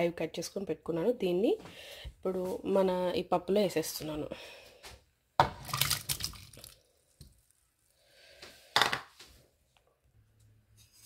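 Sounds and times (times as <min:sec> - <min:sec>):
tomatoes splashing into a pot: 0:05.4 - 0:07.4.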